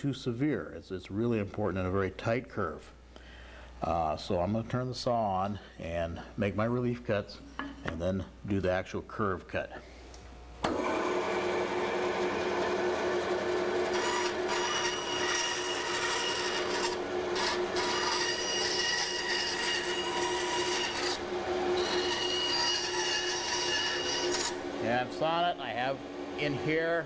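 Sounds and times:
bandsaw humming and whining: 0:10.6 - 0:27.0.

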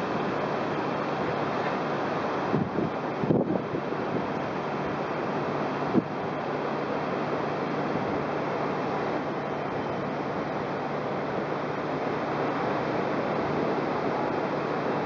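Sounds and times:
wind rushing over microphone: 0:02.4 - 0:04.4.

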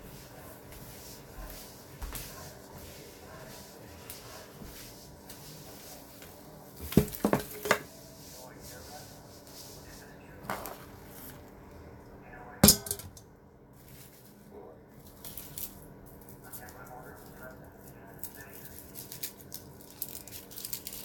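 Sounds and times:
dishes and utensils clattering: 0:06.8 - 0:07.9, 0:12.6 - 0:13.2.

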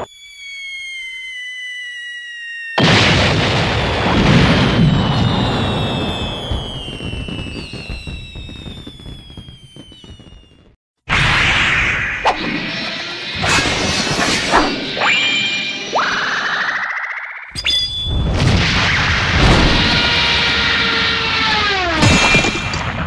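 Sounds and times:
cartoon falling whistle: 0:00.0 - 0:12.0, 0:15.0 - 0:19.1
loud explosion with crackles: 0:02.8 - 0:10.8, 0:18.0 - 0:20.3.

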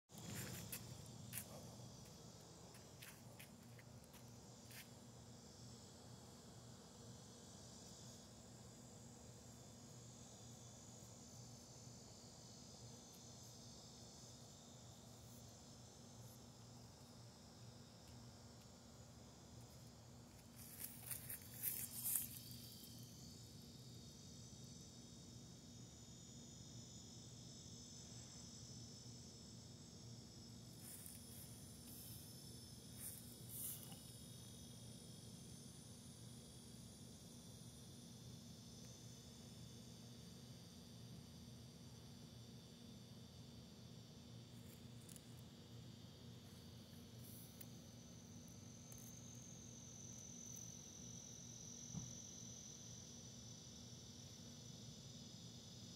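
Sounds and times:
high-pitched insect drone: 0:00.1 - 0:55.9
rustles: 0:20.3 - 0:22.7.

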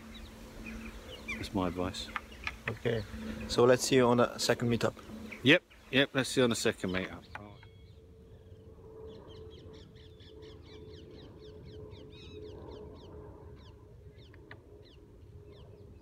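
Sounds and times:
bird chirping: 0:00.0 - 0:16.0
faint steady hum: 0:00.0 - 0:16.0
low wind rumble: 0:00.0 - 0:16.0.

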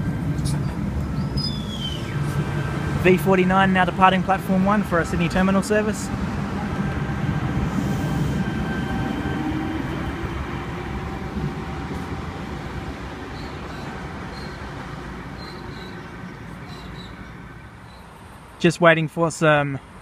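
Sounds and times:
train wheels rumbling: 0:00.0 - 0:17.7.

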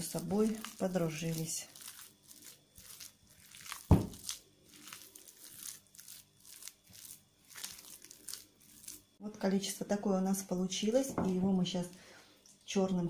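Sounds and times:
thump: 0:03.9 - 0:04.2.

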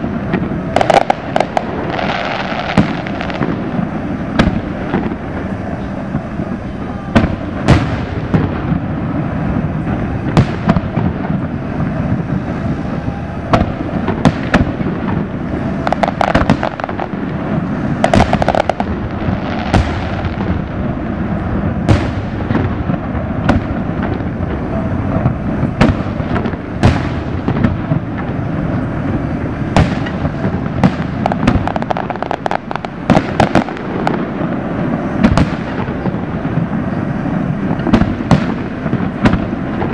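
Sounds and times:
firework shells banging: 0:00.0 - 0:05.6, 0:13.5 - 0:39.9
constant low rumble: 0:00.0 - 0:39.9
firework crackling: 0:00.0 - 0:39.9.

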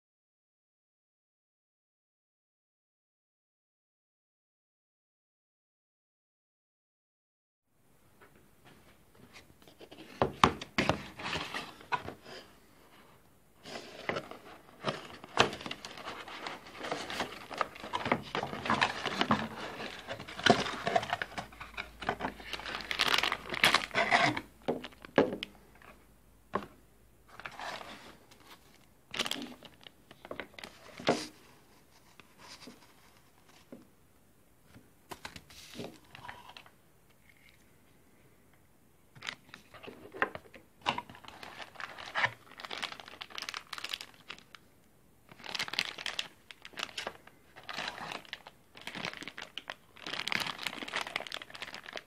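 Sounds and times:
cardboard packaging handled: 0:09.3 - 0:12.5, 0:13.6 - 0:25.4, 0:39.2 - 0:44.5, 0:45.3 - 0:52.0
plastic bag crinkling: 0:14.0 - 0:25.2, 0:29.1 - 0:31.0, 0:39.2 - 0:44.7, 0:45.3 - 0:52.0.

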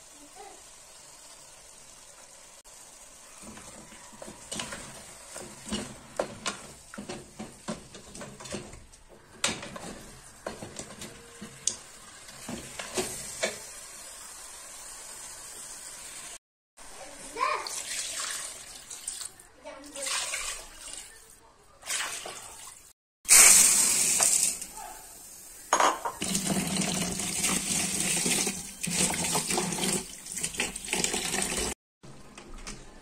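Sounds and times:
food sizzling in a pot: 0:00.0 - 0:16.4, 0:23.3 - 0:30.7
wooden spoon scraping a pot: 0:03.4 - 0:13.6.

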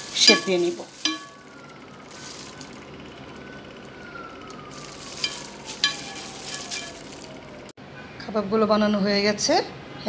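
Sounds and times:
hand squelching wet mixture: 0:00.0 - 0:03.1.

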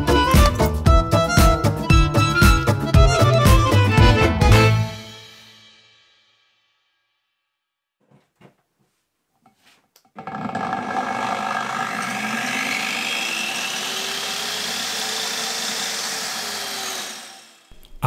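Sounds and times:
angle grinder whining: 0:10.1 - 0:17.8.

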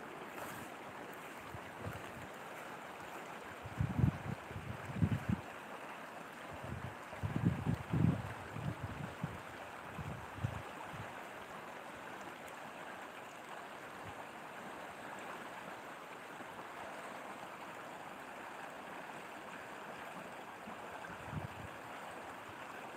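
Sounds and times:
irrigation channel flowing: 0:00.0 - 0:22.9
shallow stony river rushing: 0:00.0 - 0:22.9.

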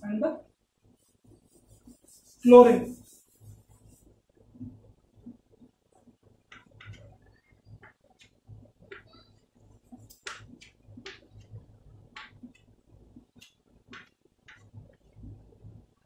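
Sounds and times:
chalk scratching on blackboard: 0:00.9 - 0:04.2.

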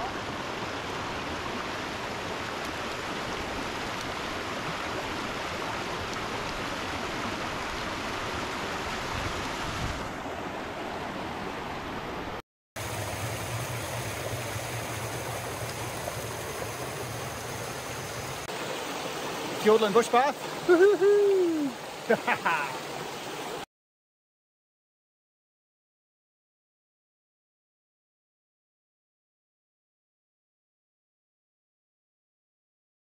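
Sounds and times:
stream rushing: 0:00.0 - 0:23.7.

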